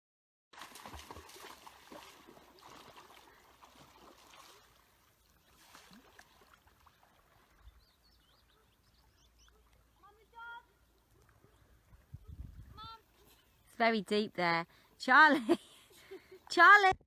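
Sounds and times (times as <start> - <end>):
paddle splashing: 0.6 - 13.4
faint water lapping: 0.6 - 13.9, 14.5 - 16.6.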